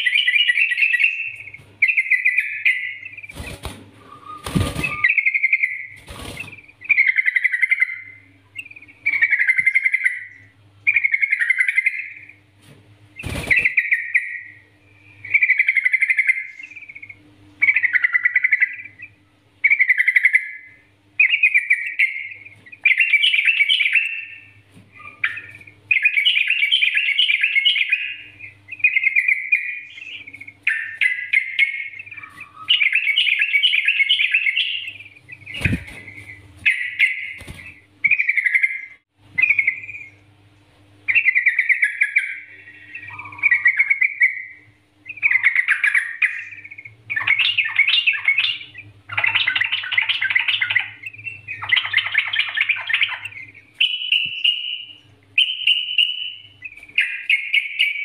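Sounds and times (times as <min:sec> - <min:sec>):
bulbul chattering song: 0:00.0 - 0:12.5, 0:13.2 - 0:40.3, 0:41.0 - 0:58.0.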